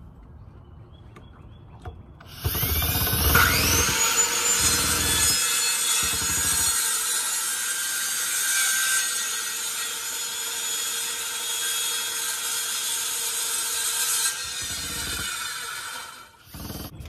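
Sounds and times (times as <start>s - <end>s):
power tool running on wood: 2.3s - 8.7s, 14.4s - 17.0s.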